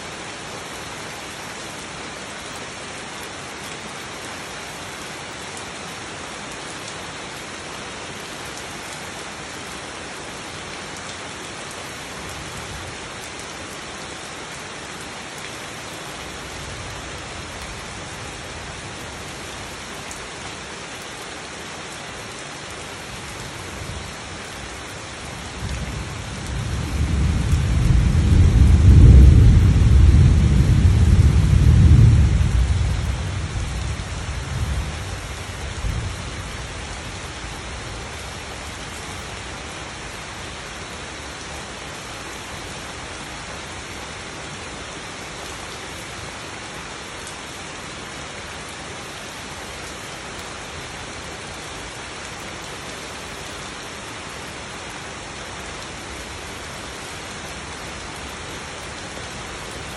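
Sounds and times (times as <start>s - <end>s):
rain on foliage: 0.0s - 59.9s
thunder rumble: 26.0s - 35.2s.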